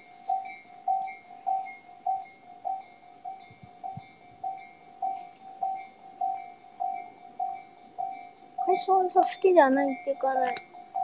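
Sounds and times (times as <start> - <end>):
level crossing bell ringing: 0.0 - 11.0.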